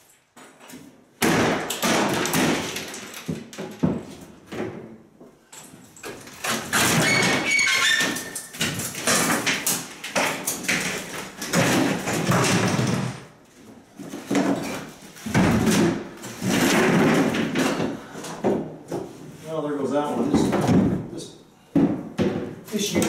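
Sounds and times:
boards knocking together: 0:01.2 - 0:05.0, 0:06.1 - 0:13.3, 0:14.0 - 0:19.2, 0:20.2 - 0:21.1, 0:21.7 - 0:23.0
wood cracking and scraping: 0:06.0 - 0:13.3, 0:14.0 - 0:18.6
wood squeaking: 0:06.4 - 0:09.3.

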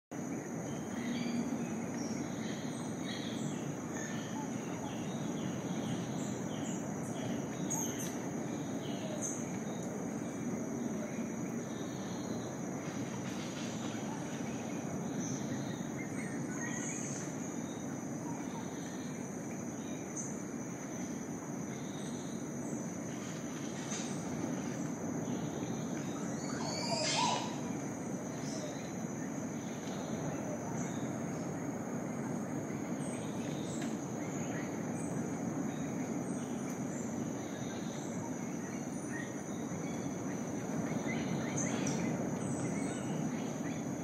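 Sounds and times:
high-pitched insect drone: 0:25.2 - 0:29.0
bird chirps and calls: 0:26.4 - 0:27.7.

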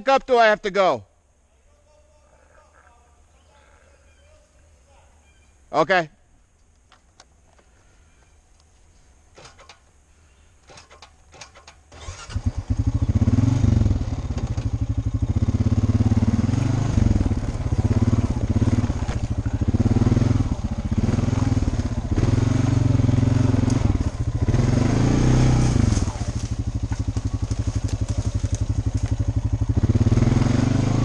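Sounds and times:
atv engine starting and revving: 0:10.7 - 0:31.0.

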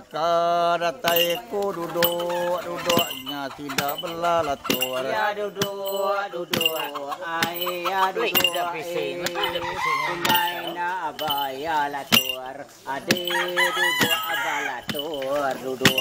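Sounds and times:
man chanting: 0:00.0 - 0:16.0
sharp metallic clink: 0:01.1 - 0:16.0.

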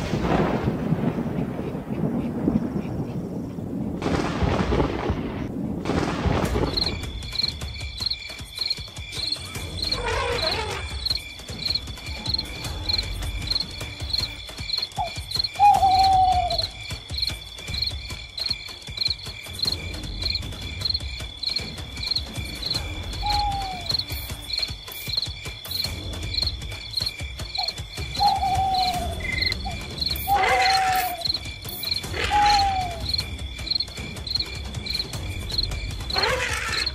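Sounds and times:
crickets chirping: 0:06.6 - 0:36.9
drawn-out falling animal calls: 0:09.2 - 0:19.8, 0:21.5 - 0:25.2, 0:26.4 - 0:36.9.

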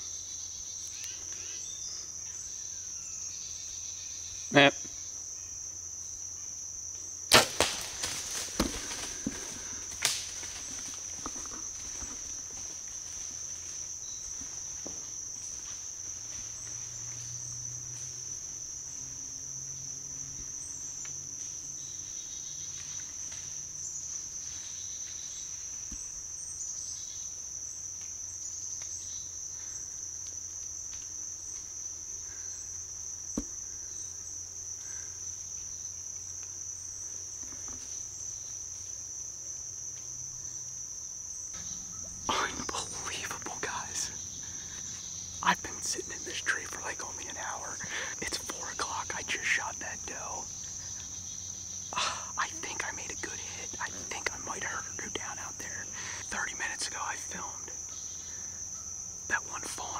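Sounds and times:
crickets droning: 0:00.0 - 0:59.9
bow shot crack: 0:07.3 - 0:10.4
quieter cracks and knocks: 0:07.3 - 0:13.2.

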